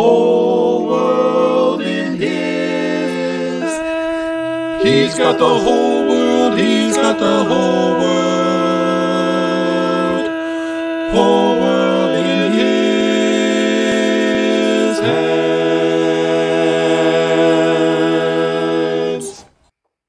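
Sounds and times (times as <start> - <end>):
male vocal quartet singing a cappella: 0.0 - 19.6.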